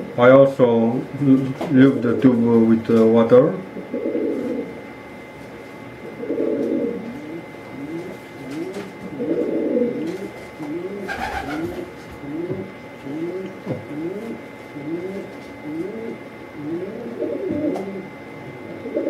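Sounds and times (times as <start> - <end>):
pigeon cooing: 3.6 - 5.0, 6.0 - 19.0.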